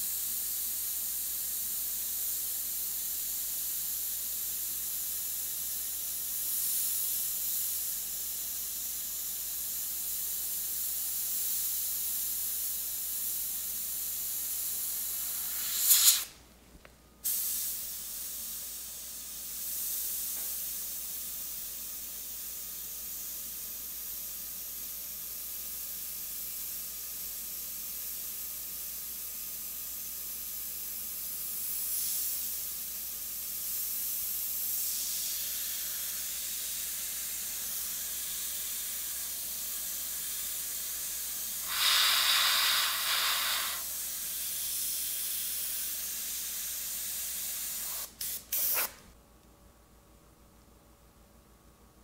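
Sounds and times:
airbrush hissing: 0:13.7 - 0:16.4, 0:31.5 - 0:49.0.

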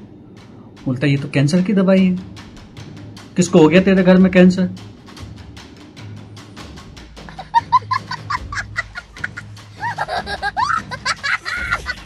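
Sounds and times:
fast ticking music beat: 0:00.0 - 0:12.0
child laughing: 0:07.3 - 0:12.0.

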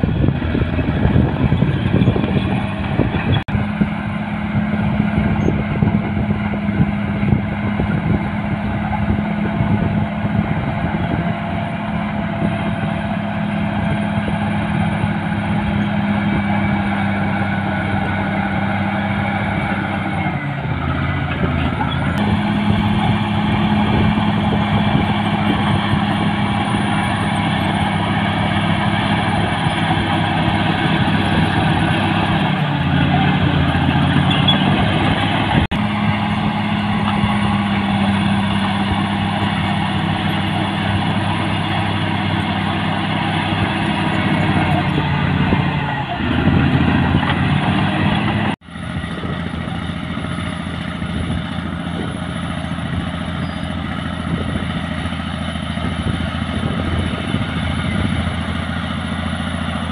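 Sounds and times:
bulldozer diesel engine running: 0:00.0 - 0:59.9.

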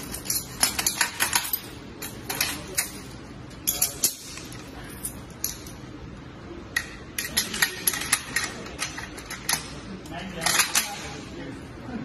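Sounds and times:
sharp clicks and clinks: 0:00.0 - 0:05.8.

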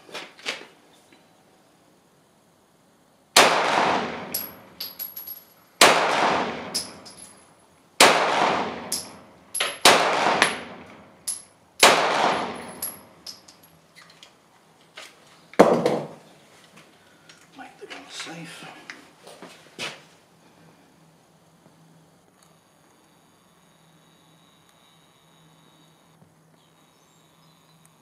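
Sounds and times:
pistol shots: 0:03.4 - 0:04.8, 0:05.8 - 0:07.2, 0:08.0 - 0:13.1
light metallic clinks: 0:04.2 - 0:05.7, 0:06.6 - 0:07.5, 0:08.8 - 0:11.6, 0:12.3 - 0:14.3.

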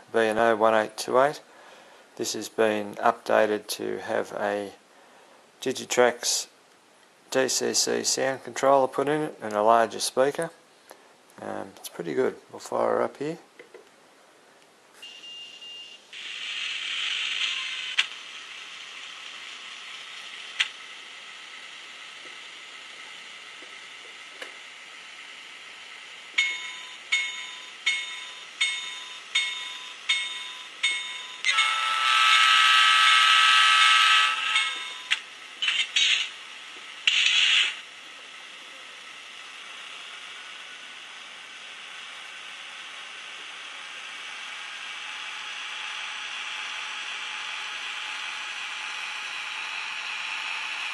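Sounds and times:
locomotive bell ringing: 0:26.4 - 0:32.5, 0:33.1 - 0:35.1.

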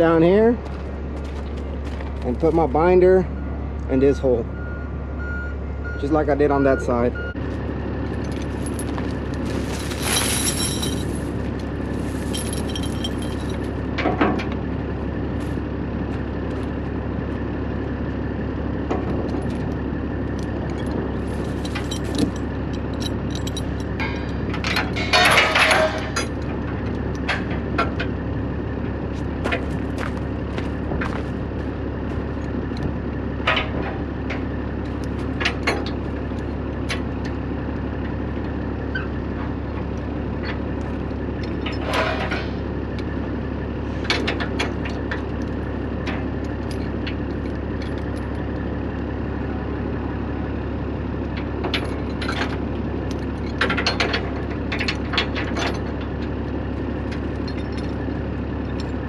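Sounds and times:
diesel truck engine idling: 0:00.0 - 0:59.0
chains clinking and clanking: 0:08.1 - 0:13.9, 0:20.7 - 0:26.5, 0:57.1 - 0:58.1.

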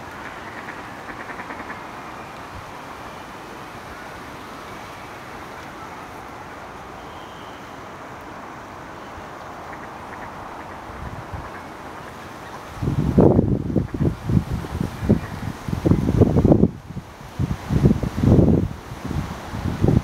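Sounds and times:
outdoor background rush: 0:00.0 - 0:20.0
duck chattering call: 0:00.2 - 0:01.8.

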